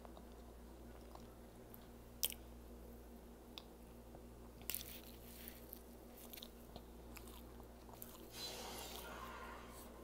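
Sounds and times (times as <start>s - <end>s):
person chewing: 0.0s - 2.5s, 4.4s - 9.8s.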